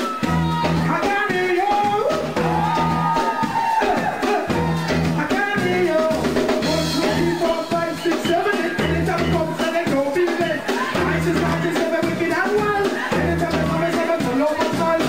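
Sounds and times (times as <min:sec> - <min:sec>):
drum kit beat: 0:00.0 - 0:15.0
pitched instrumental lines: 0:00.0 - 0:15.0
low bass figure: 0:04.4 - 0:08.0.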